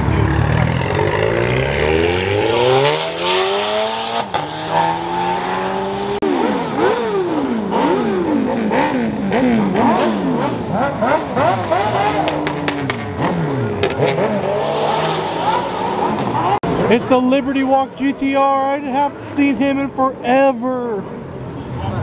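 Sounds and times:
engine revving: 0.0 - 16.8.

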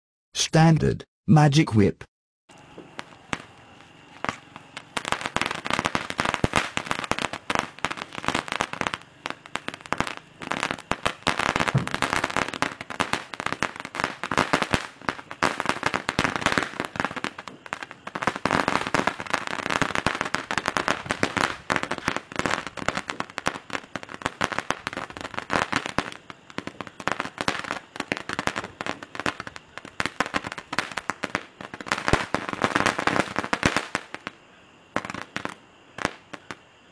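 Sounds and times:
spark firework crackling: 2.5 - 36.6.

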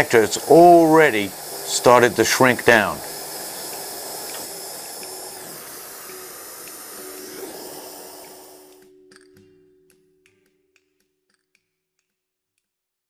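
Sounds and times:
torch flame hissing: 0.0 - 8.8.

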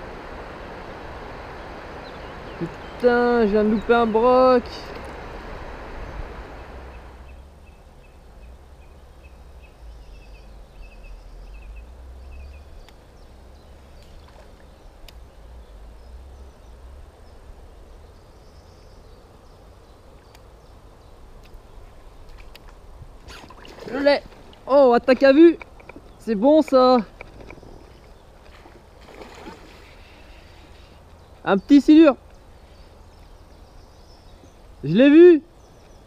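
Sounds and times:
faint clicks: 14.0 - 15.2, 20.2 - 20.5.

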